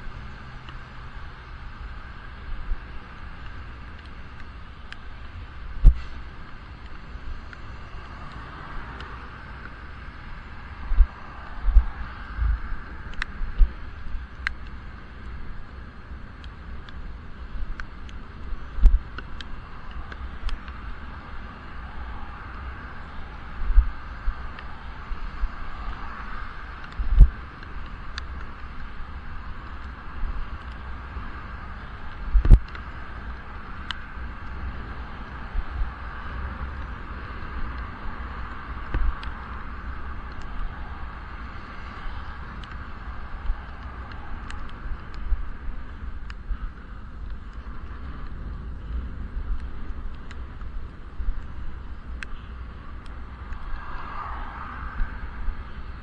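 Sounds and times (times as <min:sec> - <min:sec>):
traffic: 0:00.0 - 0:56.0
tyre hiss on wet road: 0:00.1 - 0:14.0, 0:32.8 - 0:45.8, 0:51.5 - 0:56.0
faint ticks: 0:00.6 - 0:00.9, 0:02.0 - 0:56.0
wind buffeting: 0:05.1 - 0:14.7, 0:16.6 - 0:56.0.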